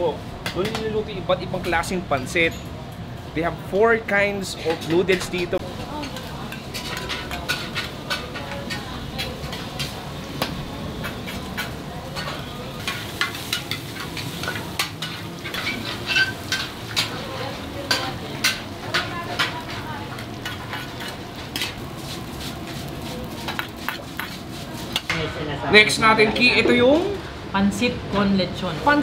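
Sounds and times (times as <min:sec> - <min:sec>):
noodles sizzling in a wok: 0:05.2 - 0:25.3.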